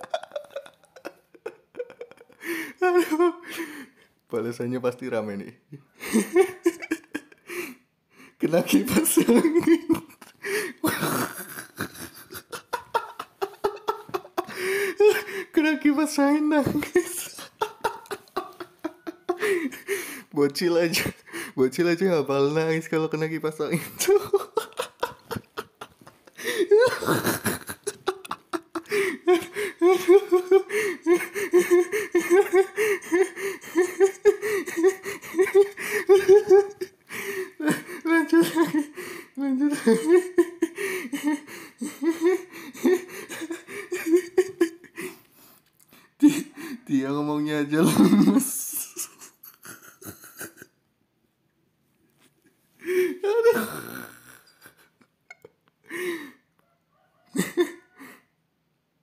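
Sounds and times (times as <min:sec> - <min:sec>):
person laughing: 0:00.0 - 0:03.8, 0:06.0 - 0:07.8, 0:08.5 - 0:20.2, 0:23.7 - 0:45.2, 0:46.2 - 0:46.8, 0:47.8 - 0:50.8, 0:52.8 - 0:56.3, 0:57.3 - 0:58.2.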